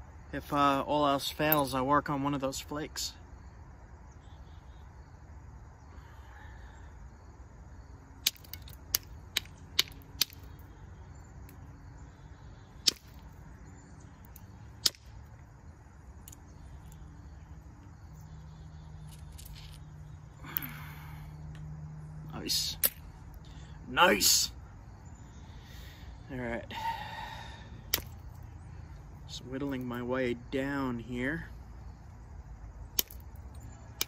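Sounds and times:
flint flakes snapping clicks: 8.2 - 10.6, 12.8 - 13.2, 14.3 - 15.1, 27.9 - 28.4, 32.9 - 33.3.

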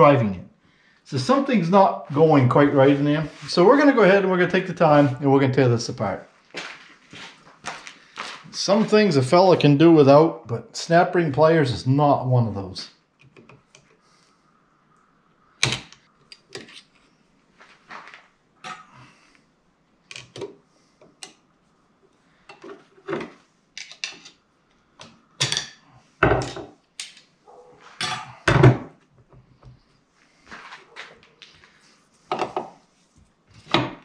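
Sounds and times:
metal parts and tools clinking: 23.8 - 24.4.

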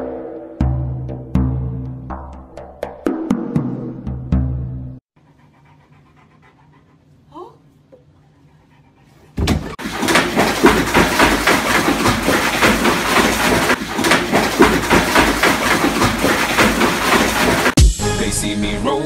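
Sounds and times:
jetted tub water rushing: 9.4 - 17.8
dog splashing in water: 9.5 - 17.8.

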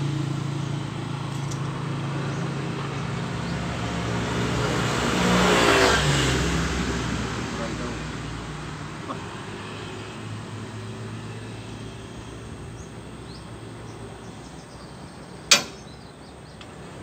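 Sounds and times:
vehicle engine running: 0.0 - 5.3.

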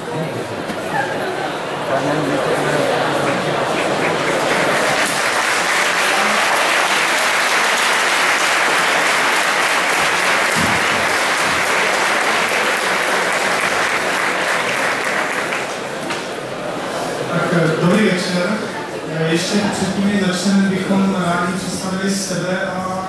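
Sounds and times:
large audience applauding: 2.0 - 16.3.

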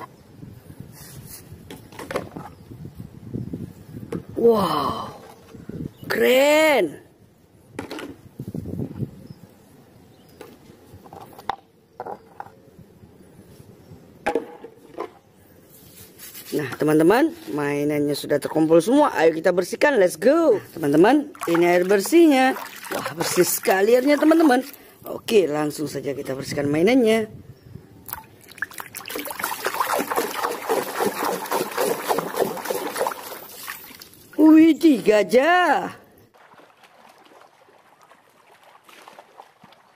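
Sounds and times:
water splashing in a plastic basin: 20.8 - 24.9, 28.0 - 34.5, 36.3 - 39.9
hand scrubbing toy underwater: 28.5 - 34.2.

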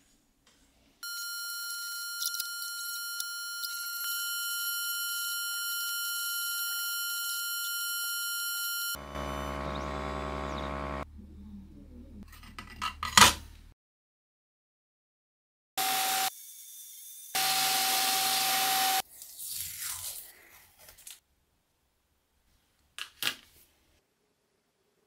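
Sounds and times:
laser engraver whine: 1.1 - 11.0
low buzzing hum: 8.9 - 12.2.

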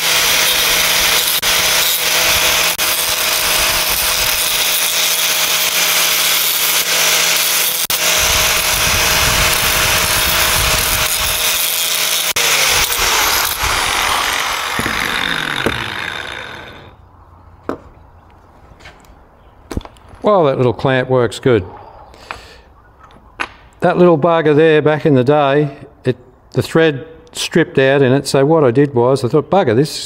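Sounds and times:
angle grinder grinding steel: 0.0 - 17.0
grinder winding down: 0.0 - 17.0.

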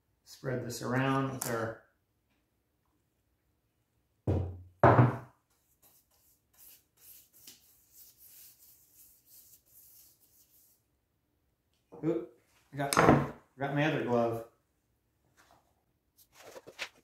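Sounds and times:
brush swishing on door: 5.5 - 10.8.

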